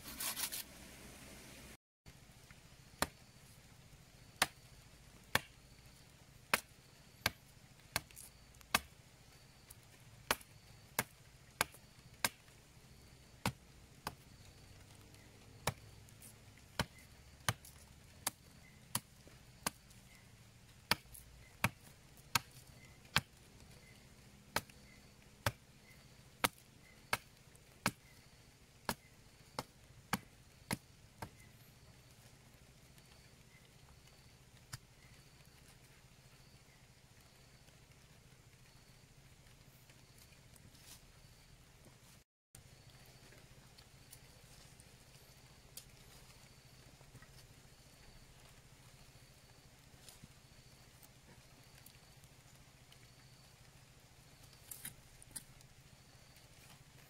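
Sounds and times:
knife chopping wood: 0:03.0 - 0:03.2, 0:04.4 - 0:04.7, 0:05.3 - 0:05.6, 0:06.5 - 0:08.9, 0:10.3 - 0:12.5, 0:13.4 - 0:14.2, 0:15.6 - 0:19.9, 0:20.8 - 0:23.8, 0:24.5 - 0:25.6, 0:26.4 - 0:28.1.

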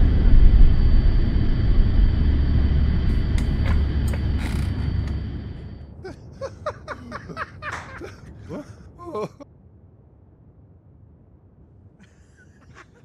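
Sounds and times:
airliner engines rumbling in cabin: 0:00.0 - 0:09.4.

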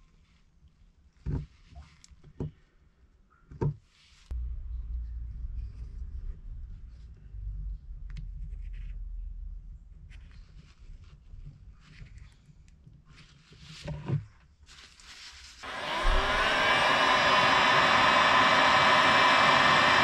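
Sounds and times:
hot air gun blowing: 0:15.6 - 0:20.0.

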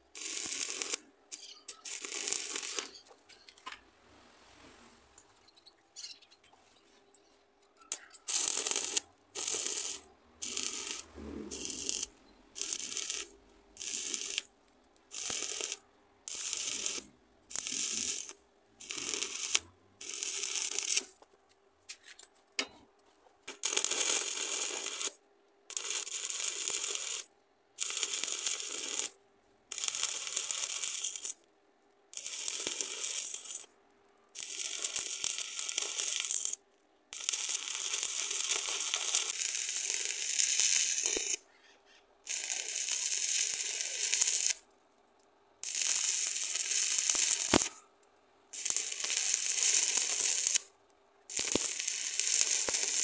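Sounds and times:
welding arc crackling: 0:00.1 - 0:03.0, 0:07.9 - 0:14.5, 0:15.1 - 0:21.2, 0:23.5 - 0:31.4, 0:32.1 - 0:33.7, 0:34.4 - 0:36.6, 0:37.2 - 0:41.4, 0:42.3 - 0:44.6, 0:45.6 - 0:47.8, 0:48.6 - 0:50.7, 0:51.3 - 0:53.0.

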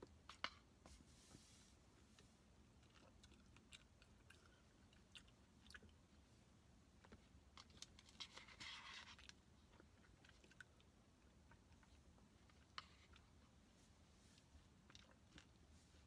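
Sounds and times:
soft chewing: 0:02.0 - 0:16.0
plastic spoon scraping paper bowl: 0:08.0 - 0:09.2.

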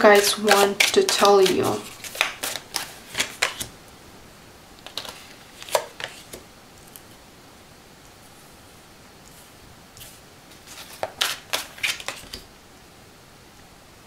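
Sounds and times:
cards clicking: 0:00.1 - 0:03.7, 0:10.7 - 0:12.4.

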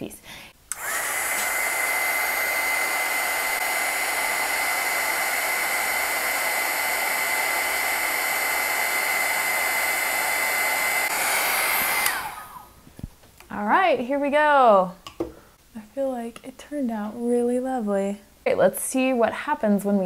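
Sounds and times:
heat tool fan whining: 0:00.7 - 0:13.1.

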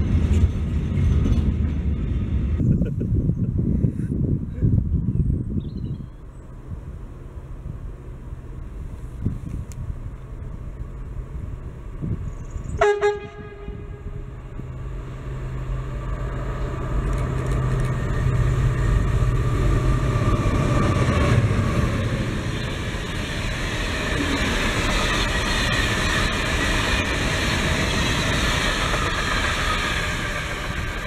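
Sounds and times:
train wagons rolling and rattling: 0:00.0 - 0:02.7, 0:14.8 - 0:31.0
diesel locomotive engine: 0:00.0 - 0:31.0
train horn blast: 0:12.8 - 0:14.3.

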